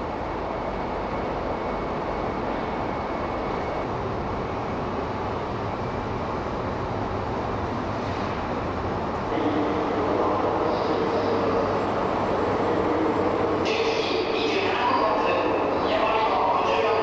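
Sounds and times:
train rumble and hum: 0.0s - 17.0s
station noise: 8.8s - 17.0s.

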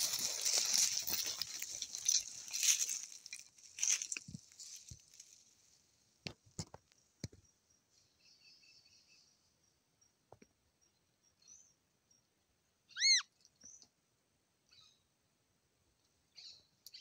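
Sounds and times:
footsteps crunching dry leaves: 0.0s - 5.6s.

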